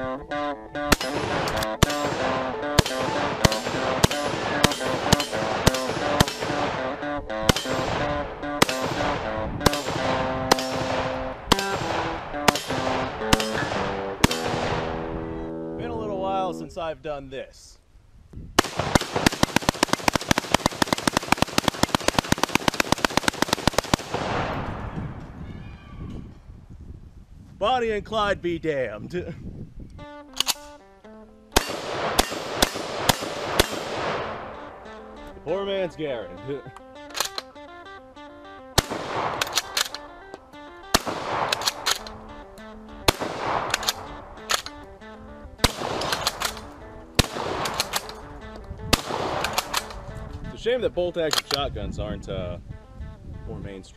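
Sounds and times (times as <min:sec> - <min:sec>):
background music with plucked notes: 0:00.0 - 0:16.8, 0:29.9 - 0:53.9
shotgun bolt clacking: 0:00.9 - 0:06.9, 0:30.3 - 0:30.8, 0:36.7 - 0:37.6, 0:38.8 - 0:45.0, 0:45.6 - 0:50.4, 0:51.3 - 0:51.6
rifle firing rapidly: 0:00.9 - 0:15.0, 0:18.6 - 0:24.7, 0:31.6 - 0:34.8, 0:38.8 - 0:40.0, 0:40.9 - 0:42.2, 0:43.1 - 0:44.8, 0:45.6 - 0:50.0
gunfire echo: 0:00.9 - 0:15.4, 0:18.6 - 0:25.3, 0:31.5 - 0:35.1, 0:38.7 - 0:40.1, 0:40.8 - 0:42.4, 0:43.0 - 0:50.0.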